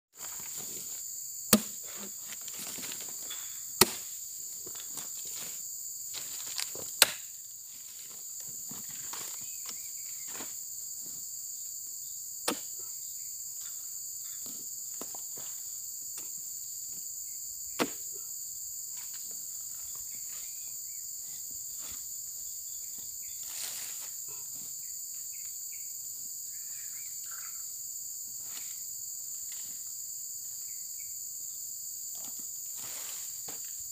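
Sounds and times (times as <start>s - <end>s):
insect chorus: 0.1s - 33.9s
rustling in undergrowth: 4.6s - 7.0s, 21.5s - 24.2s.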